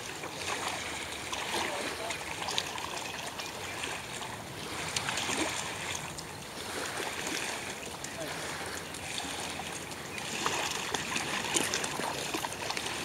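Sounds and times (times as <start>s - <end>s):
river water lapping at bank: 0.0s - 13.0s
dog splashing through water: 10.2s - 13.0s.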